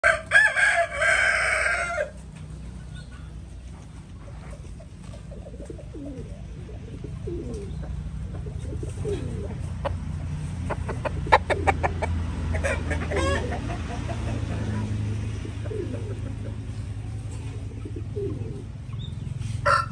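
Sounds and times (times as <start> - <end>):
rooster clucking: 4.2 - 19.9.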